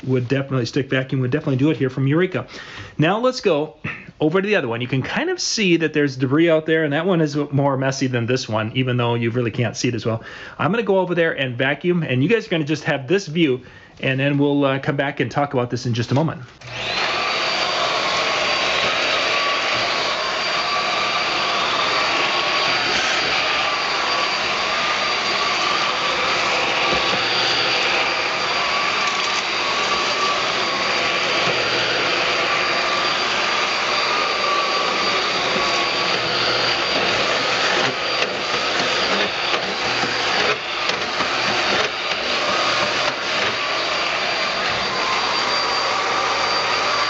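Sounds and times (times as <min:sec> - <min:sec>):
vacuum cleaner running: 0:16.6 - 0:47.0.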